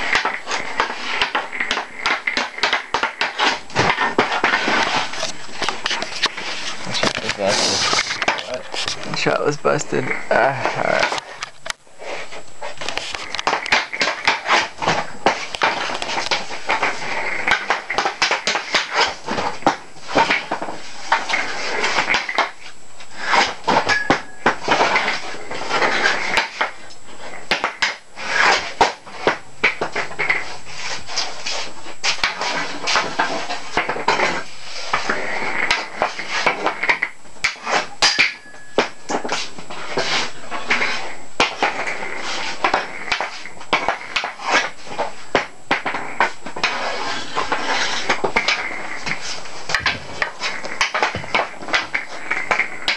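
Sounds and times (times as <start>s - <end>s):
hockey sticks clacking: 0.0s - 9.0s, 12.8s - 22.6s, 45.3s - 52.9s
puck sliding and rattling: 0.0s - 52.9s.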